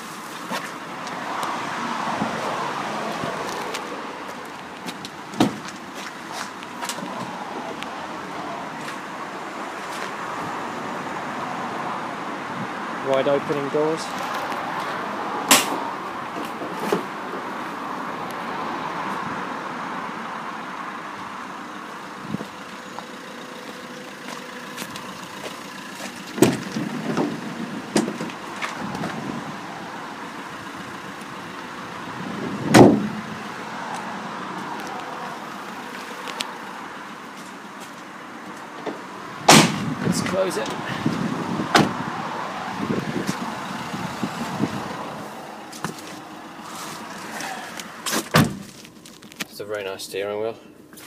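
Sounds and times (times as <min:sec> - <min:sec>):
knocks and clunks in van: 0:04.8 - 0:05.8, 0:26.3 - 0:29.2, 0:32.6 - 0:33.2, 0:41.1 - 0:42.0, 0:48.1 - 0:48.7.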